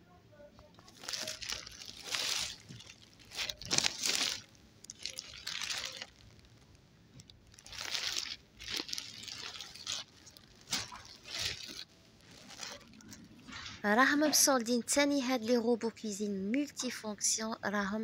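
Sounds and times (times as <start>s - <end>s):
plastic packaging crinkling: 0.8s - 13.8s.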